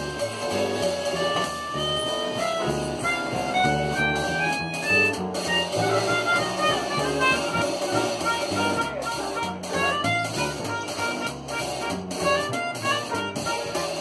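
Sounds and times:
drum kit: 0:00.0 - 0:14.0
melodica: 0:00.0 - 0:14.0
saxophone: 0:00.0 - 0:14.0
trumpet: 0:00.0 - 0:14.0
walking upright bass: 0:00.0 - 0:14.0.

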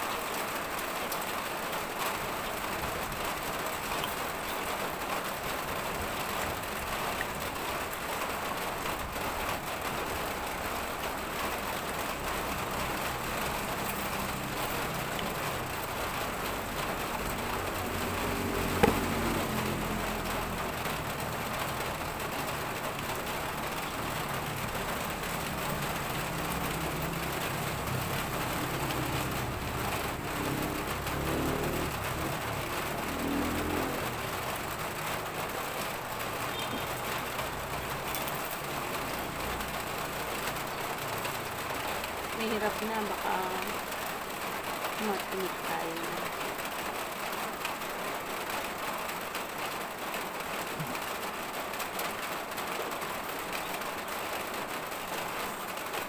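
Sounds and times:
outdoor background hiss: 0:00.0 - 0:56.0
low engine hum: 0:02.4 - 0:44.5
sharp knock: 0:18.8 - 0:19.1.

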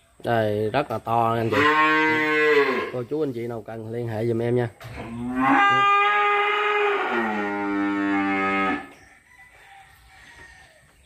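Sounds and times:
cow mooing: 0:01.5 - 0:03.0, 0:05.0 - 0:08.9.

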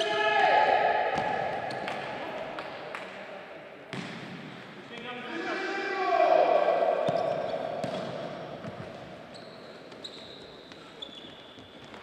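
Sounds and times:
loud shout echo: 0:00.0 - 0:03.3, 0:04.9 - 0:08.6
ball kicks and bounces echoing: 0:01.1 - 0:02.1, 0:07.0 - 0:09.2
shoes squeaking on wooden court: 0:07.0 - 0:12.0.

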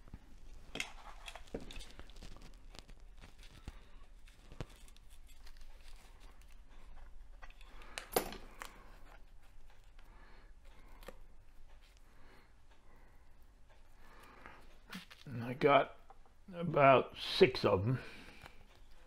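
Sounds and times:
hands rustling feathers: 0:00.0 - 0:09.5.

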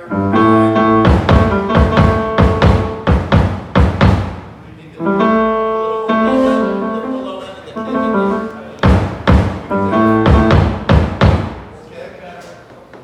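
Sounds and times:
keyboard playing chords: 0:00.0 - 0:11.7
low bass notes: 0:00.0 - 0:11.8
drum kit hits: 0:00.4 - 0:04.8, 0:08.8 - 0:11.8.

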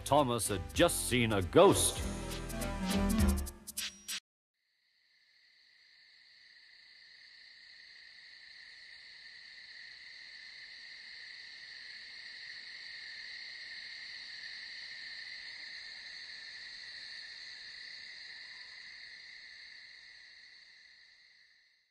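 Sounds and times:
crickets chirping: 0:04.8 - 0:21.9.

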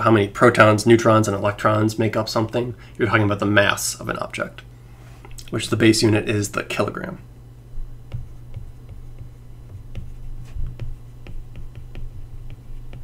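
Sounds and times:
steady low hum: 0:00.0 - 0:13.0
stylus tapping on glass screen: 0:08.0 - 0:13.0.

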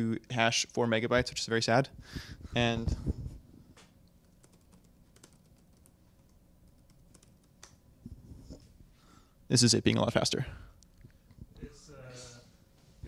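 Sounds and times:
laptop keyboard typing: 0:04.2 - 0:07.8.

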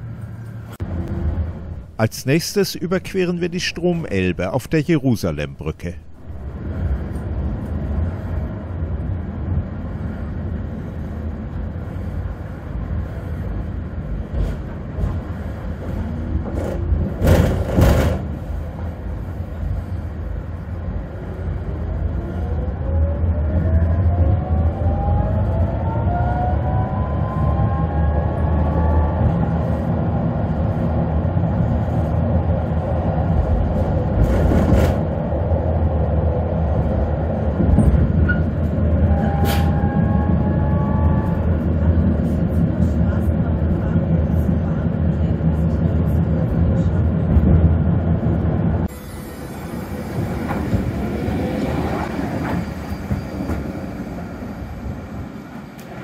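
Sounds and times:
tram running gear rumble: 0:00.0 - 0:04.0, 0:06.0 - 0:56.0.

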